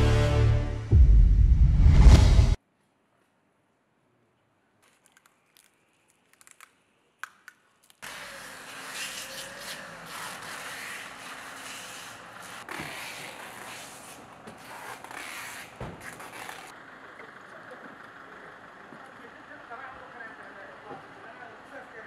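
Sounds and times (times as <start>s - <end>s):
minibus engine running: 9.5s - 22.0s.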